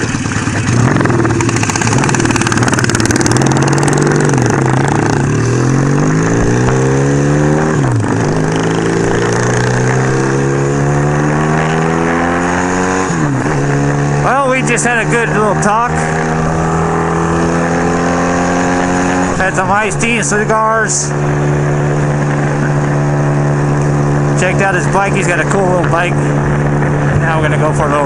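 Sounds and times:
motorcycle engine accelerating: 0.0s - 28.0s
wind rushing over microphone: 0.0s - 28.0s.

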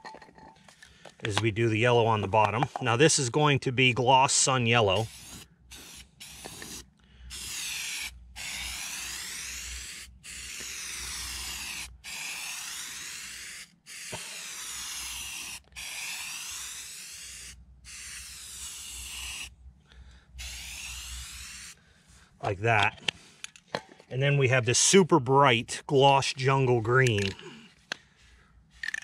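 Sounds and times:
aerosol spray can hissing: 5.0s - 19.5s, 20.4s - 21.8s.

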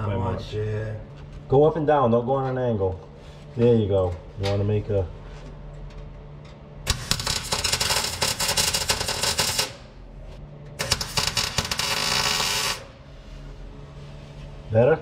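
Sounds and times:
welding arc crackling: 6.9s - 9.9s, 10.8s - 13.0s.

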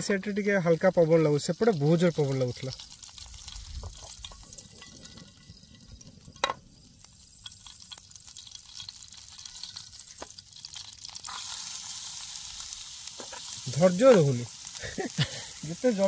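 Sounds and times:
oil sizzling in frying pan: 0.0s - 16.0s
small ticks: 7.4s - 11.0s.

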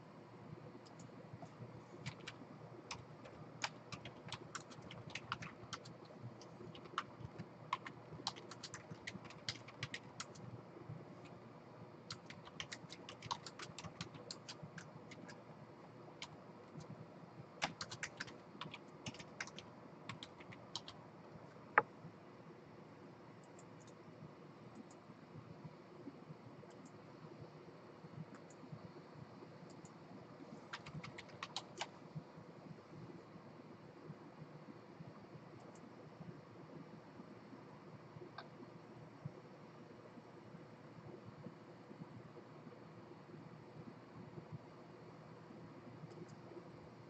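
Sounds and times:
typing on computer keyboard: 0.8s - 10.5s, 12.1s - 15.4s, 17.6s - 21.0s, 30.6s - 32.0s.

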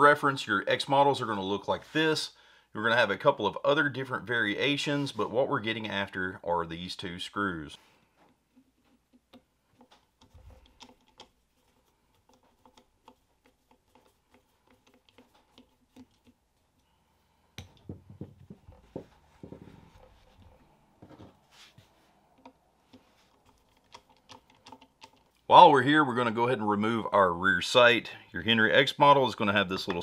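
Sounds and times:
screwdriver clicks and scrapes: 8.3s - 16.9s, 22.4s - 25.5s.

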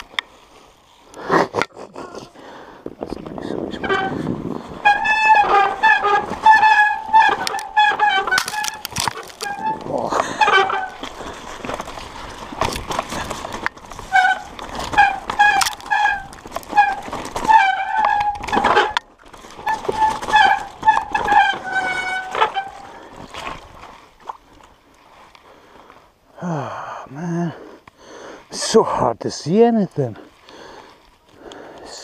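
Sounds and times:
bike rattling over rough trail: 0.0s - 26.4s, 27.8s - 32.0s
branches scraping: 3.3s - 26.1s
bike disc brakes squealing: 3.8s - 19.0s, 19.6s - 23.2s.

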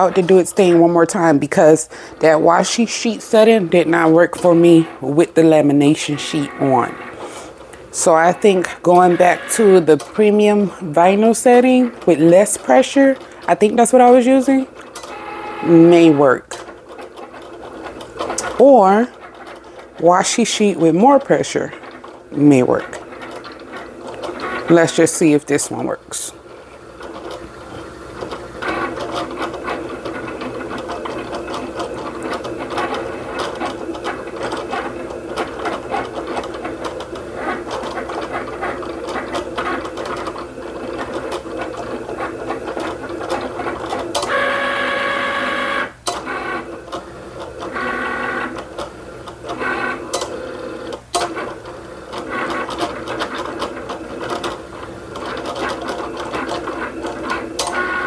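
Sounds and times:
cutting machine motors whirring: 0.0s - 25.4s, 26.7s - 58.0s.

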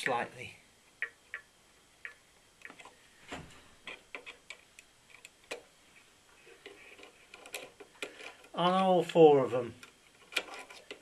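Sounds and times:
screwdriver clicking and scraping: 3.8s - 5.6s, 6.6s - 8.6s, 9.8s - 11.0s.

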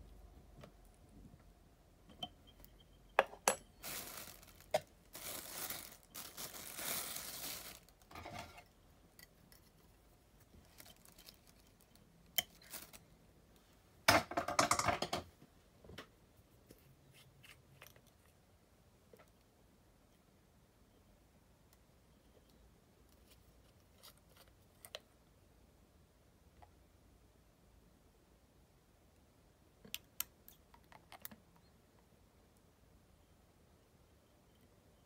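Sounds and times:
rustling of materials: 3.4s - 13.9s.

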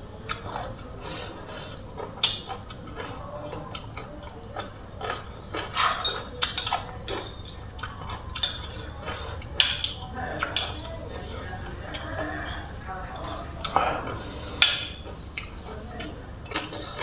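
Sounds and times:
cutlery clinking and scraping plate: 5.0s - 11.4s.

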